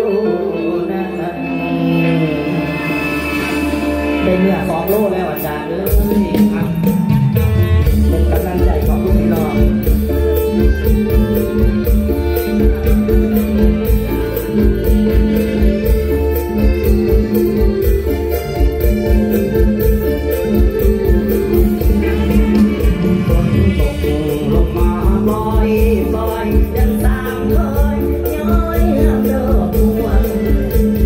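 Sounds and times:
lead melody line: 0.0 - 31.0
fast drum beat: 4.3 - 31.0.

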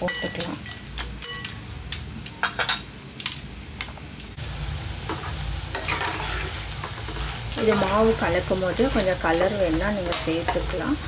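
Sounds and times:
batter sizzling in hot oil: 4.1 - 11.0.

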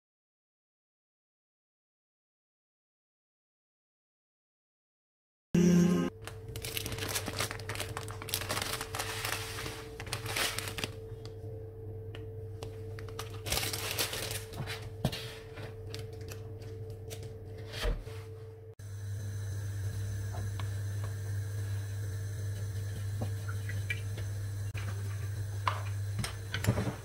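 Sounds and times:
steady low hum: 5.6 - 27.0
plastic packet crinkling: 6.2 - 11.0, 13.0 - 14.9.

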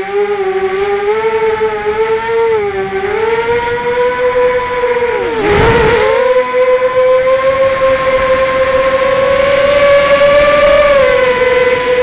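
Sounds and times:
quadcopter motors whining: 0.0 - 12.0
rush of noise: 3.4 - 11.3.

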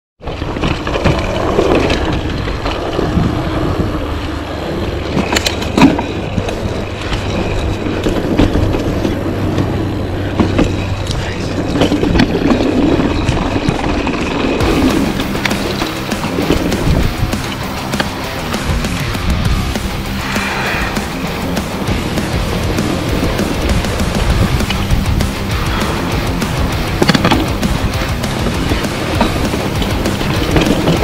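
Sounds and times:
bike tyres rolling on dirt: 0.2 - 31.0.

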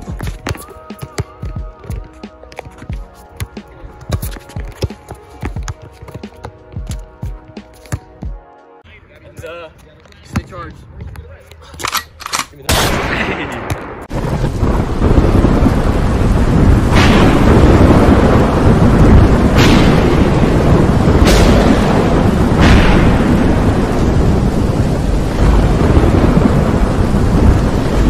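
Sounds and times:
sharp thunder cracks: 12.7 - 28.0
low rumble of thunder: 14.1 - 28.0
rain hiss: 14.1 - 28.0.

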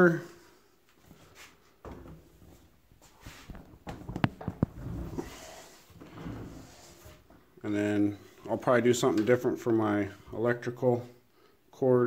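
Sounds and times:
plastic pipe knocks and clicks: 3.8 - 4.8.

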